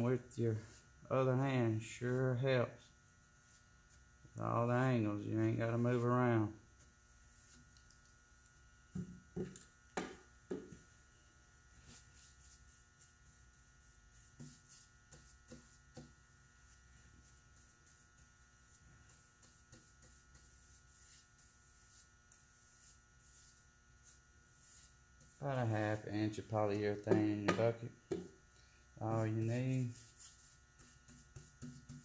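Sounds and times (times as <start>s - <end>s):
electrical hum: 0.0s - 32.0s
brush knocking against a can: 8.9s - 10.9s, 26.9s - 28.4s, 29.7s - 32.0s
paintbrush swishing: 11.8s - 27.7s, 29.0s - 32.0s.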